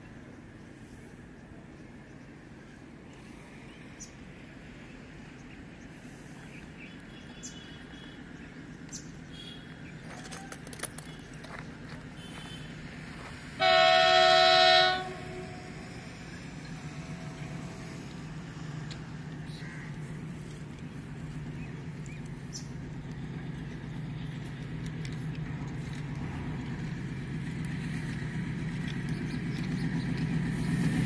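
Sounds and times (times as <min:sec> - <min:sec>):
train rumble: 0:00.0 - 0:31.0
locomotive horn blast: 0:13.6 - 0:15.8.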